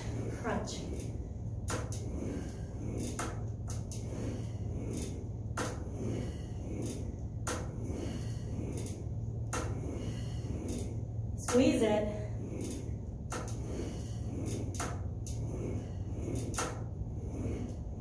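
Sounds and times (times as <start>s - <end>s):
low hum: 0.0s - 18.0s
exercise machine sharp clacks: 6.8s - 8.1s.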